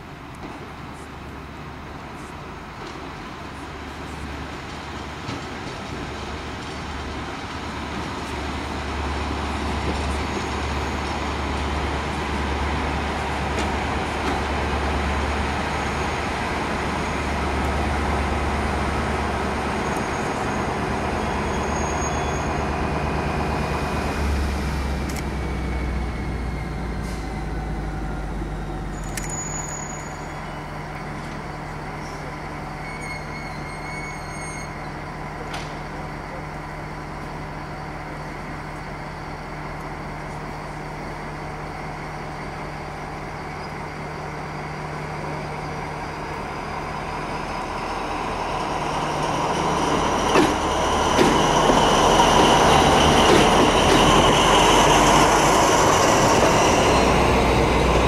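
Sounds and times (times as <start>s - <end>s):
diesel locomotive engine humming: 0.0s - 58.0s
thin falling squeal: 19.8s - 22.8s, 28.9s - 30.7s, 32.0s - 35.0s.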